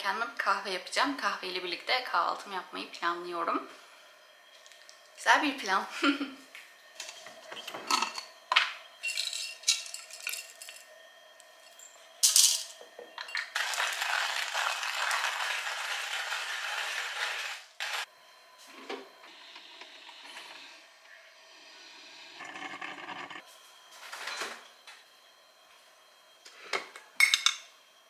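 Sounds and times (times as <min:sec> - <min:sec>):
coffee beans rattling into grinder: 0:09.0 - 0:10.9, 0:12.2 - 0:18.1
hand grinder grinding beans: 0:13.5 - 0:18.1, 0:22.3 - 0:23.4.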